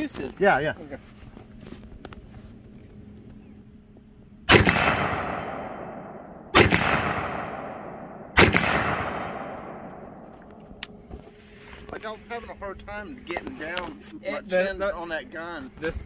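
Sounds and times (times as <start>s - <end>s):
rifle shots with echo: 4.5s - 10.3s.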